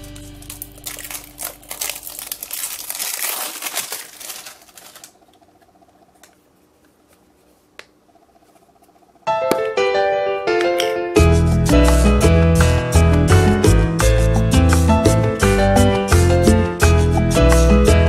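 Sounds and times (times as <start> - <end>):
plastic wrapping crinkling: 0.0 - 6.4.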